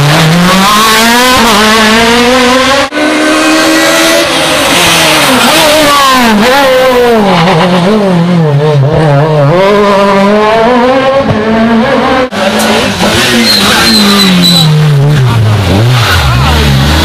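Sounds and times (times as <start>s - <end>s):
rally car engines revving: 0.0s - 17.0s
tyre squeal: 13.2s - 15.0s.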